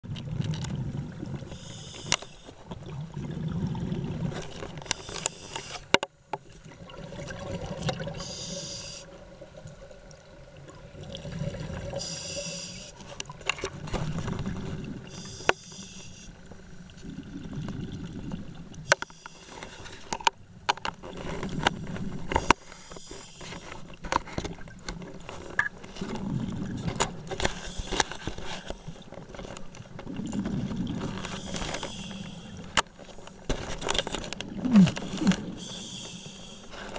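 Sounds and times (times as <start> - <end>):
exhaled bubbles rumbling: 0.0 - 1.6, 2.6 - 4.9, 6.5 - 8.2, 9.2 - 12.0, 13.3 - 15.2, 16.8 - 18.9, 26.0 - 27.3, 30.0 - 31.6, 34.3 - 35.8
regulator inhale hiss: 1.5 - 2.5, 4.9 - 5.9, 8.2 - 9.1, 12.0 - 13.0, 15.1 - 16.4, 18.9 - 20.0, 22.4 - 23.8, 27.5 - 29.0, 31.2 - 32.8, 35.5 - 36.9.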